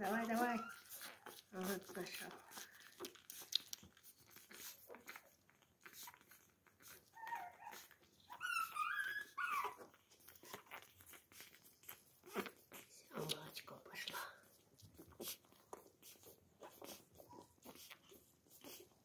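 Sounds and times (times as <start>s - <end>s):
puppy whimpering and whining: 0.0s - 13.2s, 14.5s - 19.0s
puppies suckling wet smacking: 0.0s - 19.0s.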